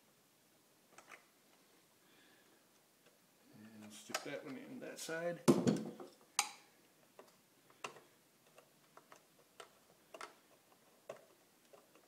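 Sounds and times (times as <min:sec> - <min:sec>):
small clicks of wire leads: 0:07.2 - 0:12.0.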